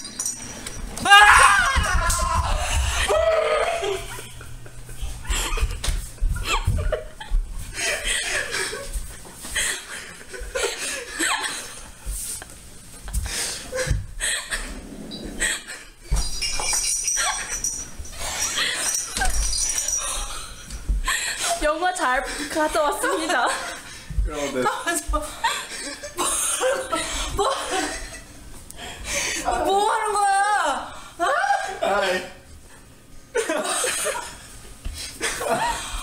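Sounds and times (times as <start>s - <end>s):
woman laughing and crying: 1.1s - 12.0s, 16.8s - 28.3s, 29.2s - 31.8s.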